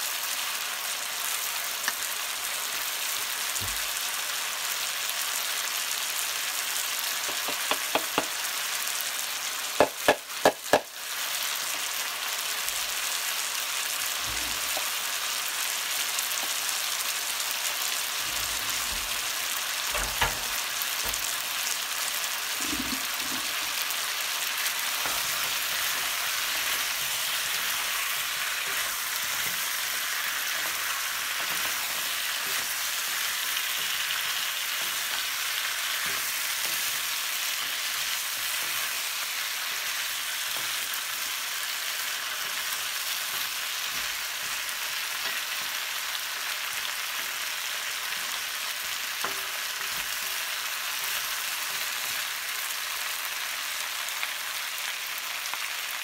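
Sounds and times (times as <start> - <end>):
vegetables sizzling in a frying pan: 0.0 - 56.0
wooden utensils scraping a pan: 22.5 - 23.9.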